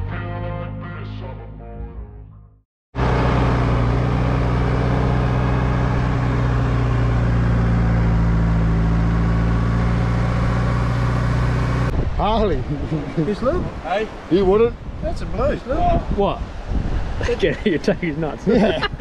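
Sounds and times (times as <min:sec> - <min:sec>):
vehicle engine drone: 0:03.0 - 0:14.4
tyre and road noise: 0:03.0 - 0:19.0.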